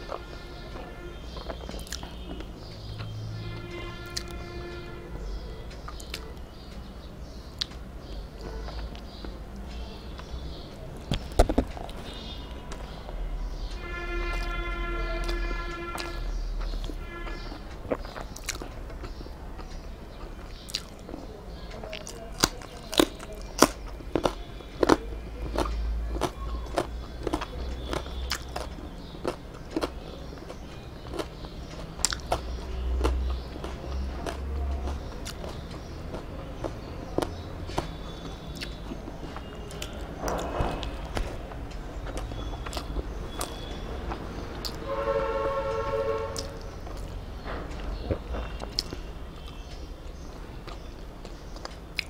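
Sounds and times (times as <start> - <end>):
wet chewing and mouth smacks: 1.3 - 3.2, 15.3 - 21.2, 21.8 - 41.4, 42.0 - 44.8, 46.4 - 47.1, 47.8 - 49.6, 50.6 - 52.0.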